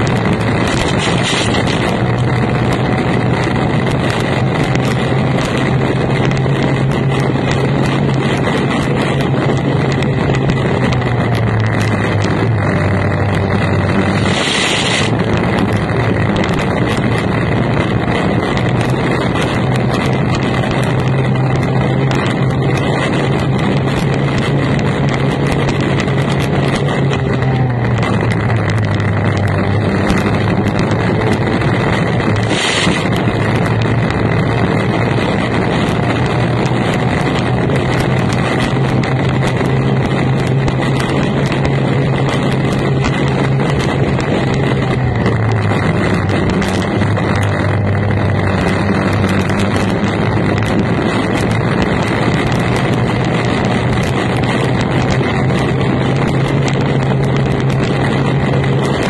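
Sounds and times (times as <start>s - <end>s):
racing outboard engine: 0.0s - 59.0s
wind noise on microphone: 0.0s - 59.0s.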